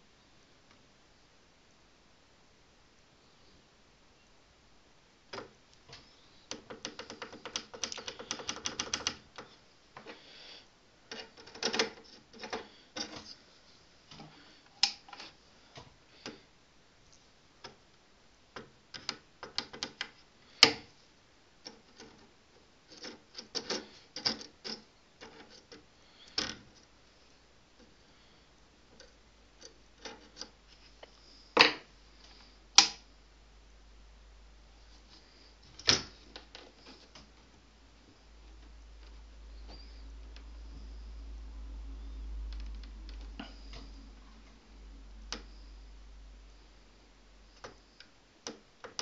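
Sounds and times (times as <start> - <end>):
clicks and taps of parts: 5.3 - 10.2, 11.1 - 13.3, 14.2 - 16.4, 18.6 - 20.9, 32.8 - 33.1, 47.6 - 49.0.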